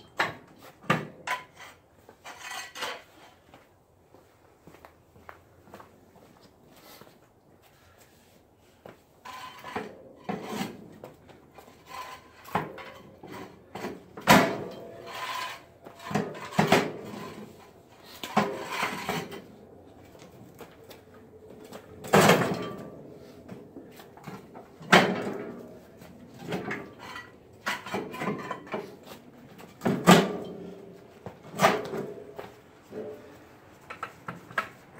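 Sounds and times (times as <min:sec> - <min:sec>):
metal plow blade clanking and scraping: 0:00.0 - 0:03.4, 0:09.2 - 0:19.5, 0:22.0 - 0:23.4, 0:24.2 - 0:30.9.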